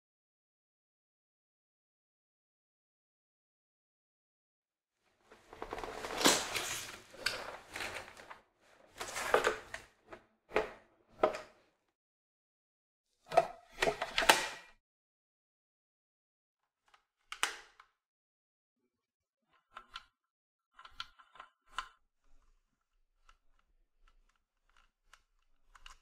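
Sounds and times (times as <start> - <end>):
plastic parts rustling and scraping: 5.3 - 11.5.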